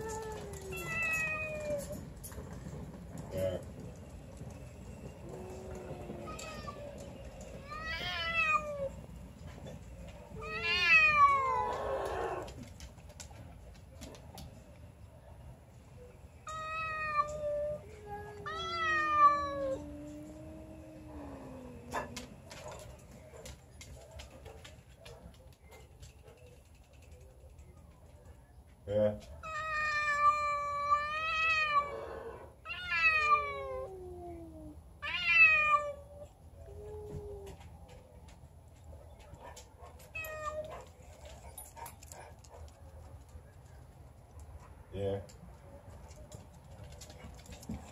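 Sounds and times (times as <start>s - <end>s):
cats yowling: 0.0s - 2.0s, 5.3s - 9.0s, 10.4s - 12.6s, 16.4s - 22.3s, 29.4s - 37.6s, 40.0s - 40.9s
cat low moan: 16.5s - 22.3s, 29.4s - 37.6s.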